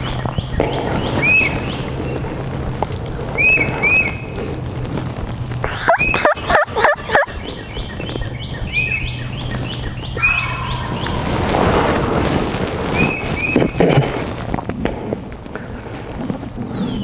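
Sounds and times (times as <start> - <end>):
turkey gobbling: 5.7 - 7.6, 10.2 - 13.9
high falling calling notes: 10.1 - 13.6.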